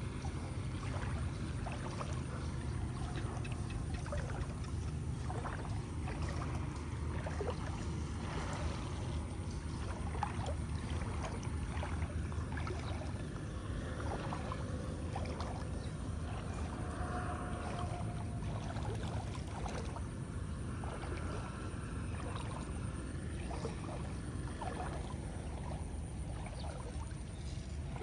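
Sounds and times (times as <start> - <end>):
steady low rumble: 0.0 - 28.0
wading through water splashing: 0.0 - 28.0.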